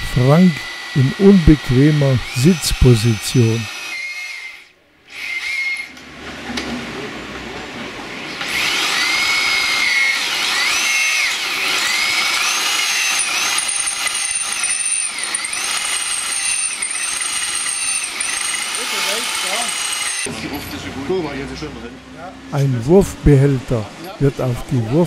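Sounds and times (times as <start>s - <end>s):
hammer drill boring through metal: 0.0s - 6.0s, 8.3s - 20.8s.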